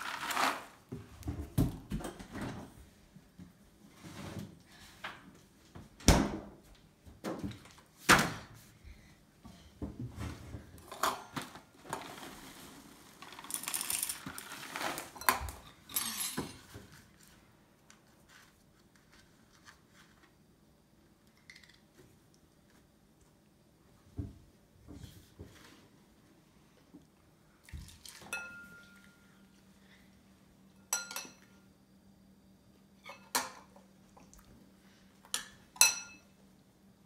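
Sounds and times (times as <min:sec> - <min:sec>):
cereal poured into a bowl: 0:00.0 - 0:00.8, 0:12.0 - 0:15.2.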